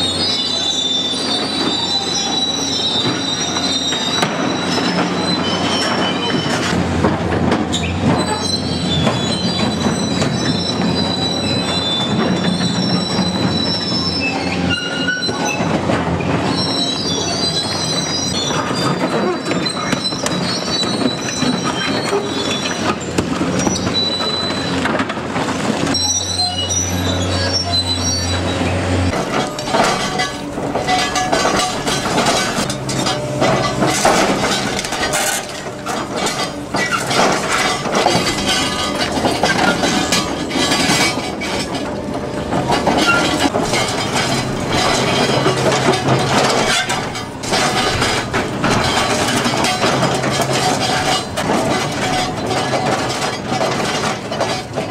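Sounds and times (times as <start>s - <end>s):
heavy metal scraping with squeals: 0.0s - 7.0s, 7.7s - 54.9s
concrete crushing and grinding: 29.1s - 54.9s.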